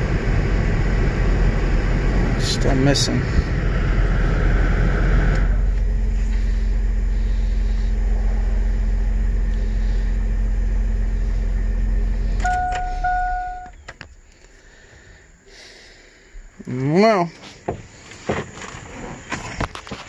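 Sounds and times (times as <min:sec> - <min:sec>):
engine idling rough: 0:00.0 - 0:20.0
dashboard chime beeping: 0:12.4 - 0:13.8.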